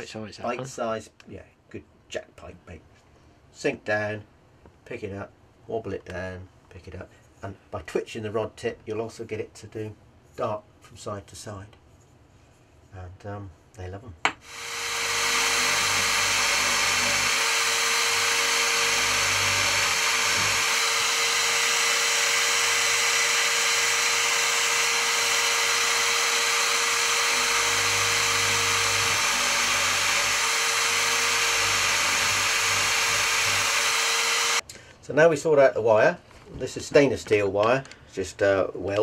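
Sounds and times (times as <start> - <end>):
electric drill whining: 14.4 - 34.6.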